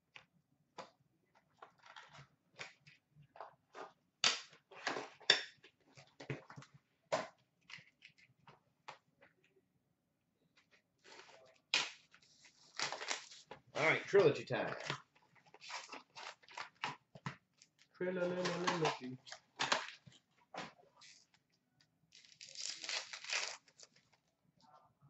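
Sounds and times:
pack wrappers rustling: 22.1 - 24.2.

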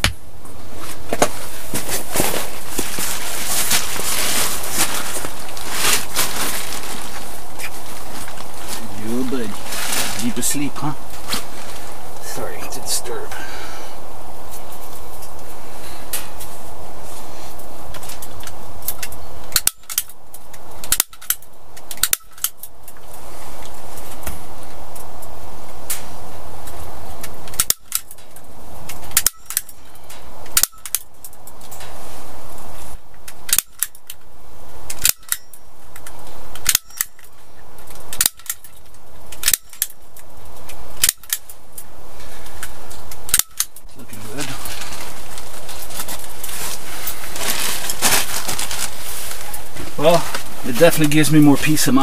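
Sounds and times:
steady rushing hiss: 44.0 - 52.0.

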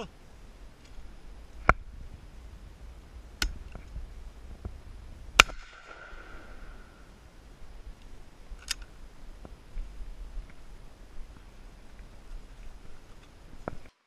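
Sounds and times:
shotgun cracks: 5.4 - 6.9.

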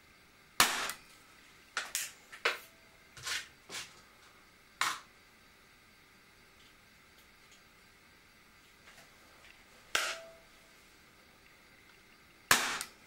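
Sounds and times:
air pistol firing: 0.6 - 1.0, 12.5 - 13.0.

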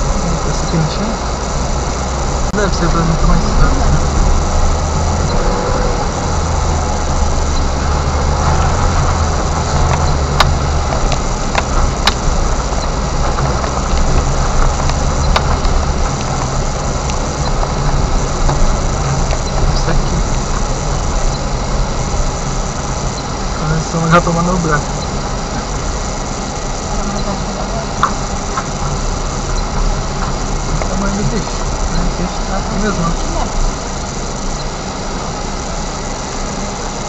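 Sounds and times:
car engine hum: 0.0 - 37.0
road rumble: 0.0 - 37.0
sharp clicks and knocks: 8.4 - 21.6, 27.9 - 32.2.

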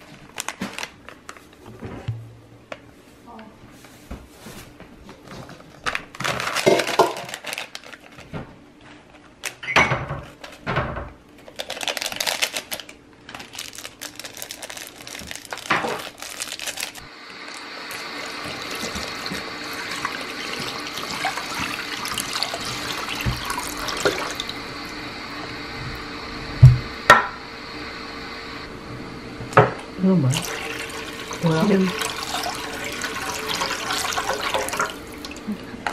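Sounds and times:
powder rustling from packet: 5.9 - 8.3, 11.4 - 17.1
water pouring into pot: 17.4 - 24.9, 30.3 - 35.5.

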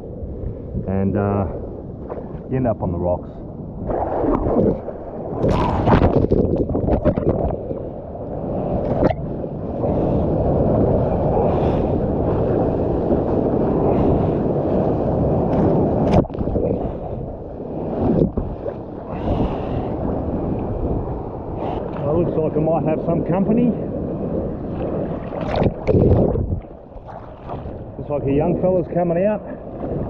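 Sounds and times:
wind on microphone: 0.0 - 30.0
water splashing against camera: 3.8 - 7.8, 8.8 - 9.3, 15.4 - 17.3, 24.7 - 27.9.

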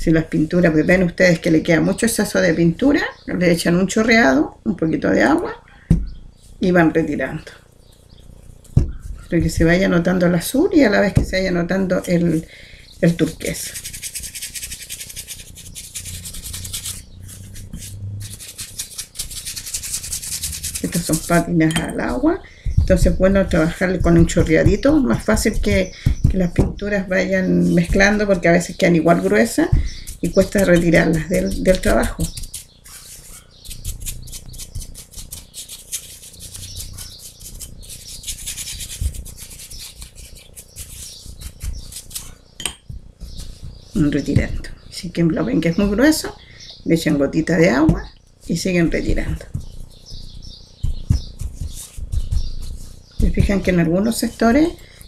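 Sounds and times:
paintbrush scrubbing: 12.0 - 42.4, 49.4 - 54.8.

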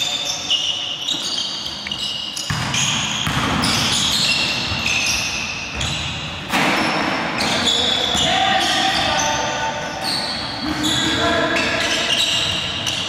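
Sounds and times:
sneakers squeaking: 0.0 - 13.0
basketball bouncing: 2.4 - 7.2.

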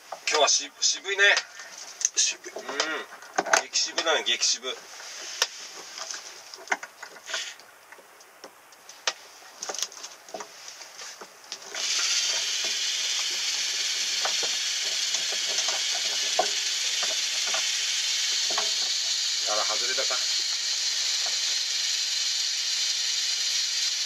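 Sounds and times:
steady hiss: 0.0 - 24.0.

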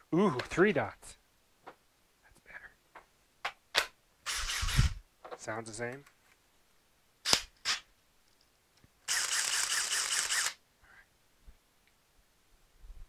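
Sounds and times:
drill clicks: 9.1 - 10.6
drill motor whine: 9.1 - 10.6.

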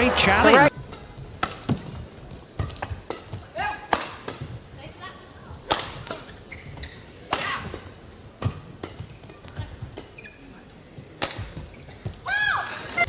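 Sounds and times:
rackets hitting shuttlecock: 0.7 - 4.7, 5.6 - 10.3, 11.1 - 12.3
shoes squeaking on court: 0.7 - 12.3.

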